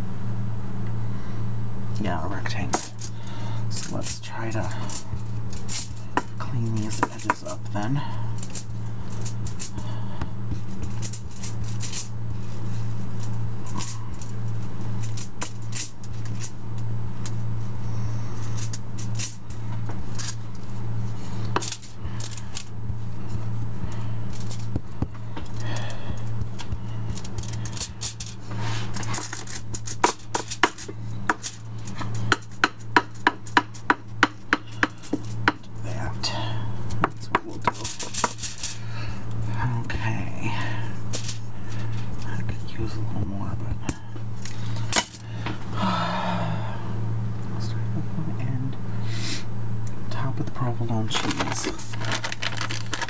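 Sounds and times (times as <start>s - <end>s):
steady low hum: 0.0s - 53.0s
foil crinkling: 24.3s - 32.2s, 37.2s - 38.9s, 51.0s - 53.0s
scraping: 51.1s - 53.0s.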